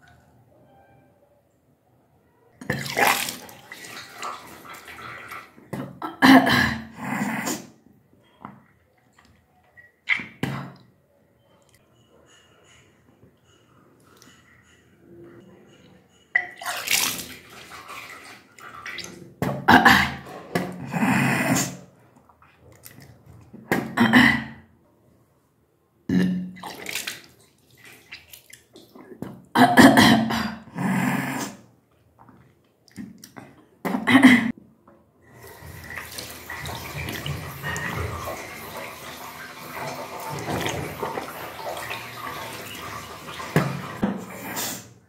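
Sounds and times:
liquid splashing into basin: 2.6 - 6.0, 16.4 - 20.8, 26.6 - 29.5, 35.3 - 44.9
woman retching and gagging: 5.8 - 7.8, 19.5 - 21.9, 23.7 - 24.7, 26.1 - 26.6, 28.9 - 31.7, 32.9 - 34.6
tap running: 35.4 - 44.3.

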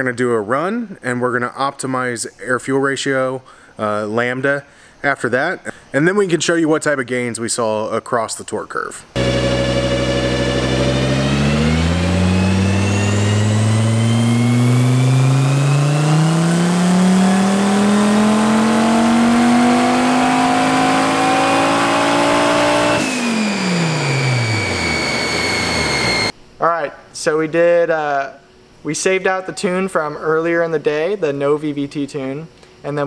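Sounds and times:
car engine revving: 9.2 - 26.3
high turbo whine: 9.2 - 26.4.

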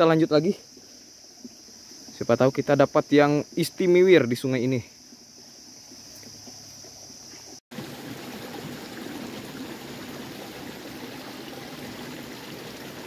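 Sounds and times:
high insect call: 0.0 - 13.0
stream water trickling: 3.6 - 13.0.

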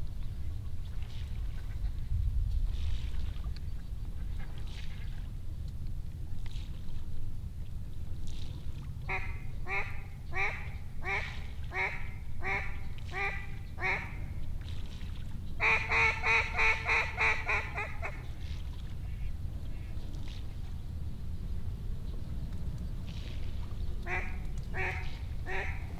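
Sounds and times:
duck quacking: 9.1 - 14.2, 15.6 - 18.2, 24.1 - 25.9.

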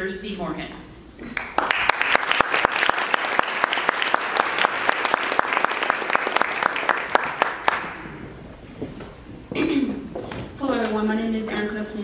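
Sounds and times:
audience applauding: 1.3 - 8.2.

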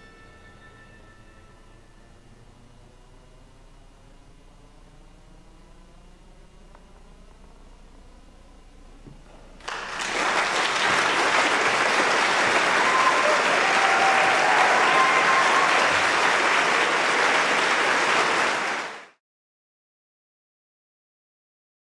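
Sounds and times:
audience applauding: 9.6 - 19.2.

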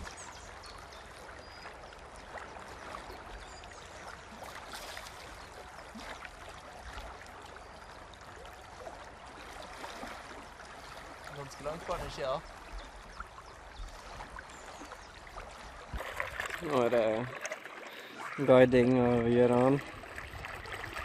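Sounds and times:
river water flowing: 0.0 - 21.0.

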